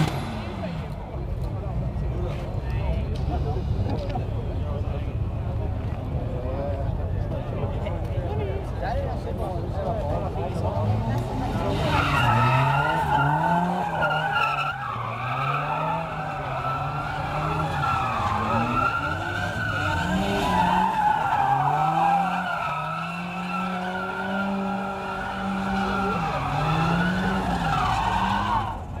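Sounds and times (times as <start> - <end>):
car engine revving: 10.6 - 29.0
tyres squealing: 11.7 - 28.8.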